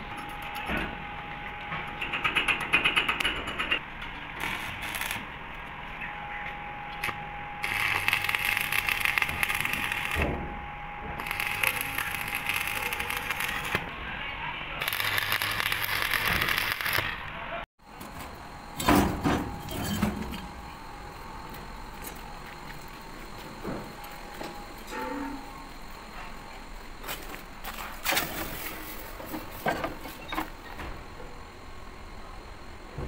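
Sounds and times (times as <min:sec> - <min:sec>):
welding arc crackling and sizzling: 0:02.0 - 0:05.4, 0:06.9 - 0:10.4, 0:11.2 - 0:13.9, 0:14.8 - 0:17.3.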